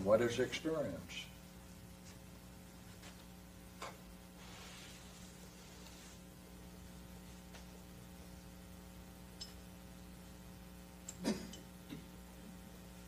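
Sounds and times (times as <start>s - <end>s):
steady electrical hum: 0.0s - 13.0s
faint hiss: 3.8s - 8.3s.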